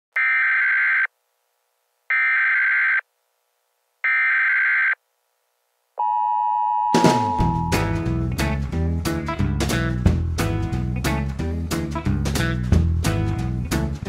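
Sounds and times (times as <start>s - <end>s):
lower steady tone: 6.0s - 8.1s.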